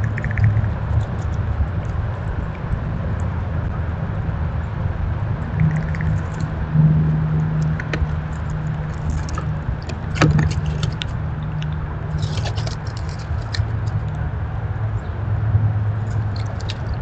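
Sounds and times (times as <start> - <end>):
squirrels foraging clicks and crackles: 0.0 - 2.6, 5.4 - 6.6, 7.4 - 14.3, 15.9 - 17.0
low hum: 0.0 - 17.0.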